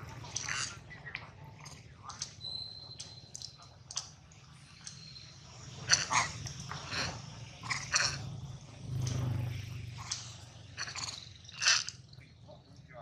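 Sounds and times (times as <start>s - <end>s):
monkey clicks and smacks: 0.3s - 5.0s
faint high whistle: 2.4s - 3.4s.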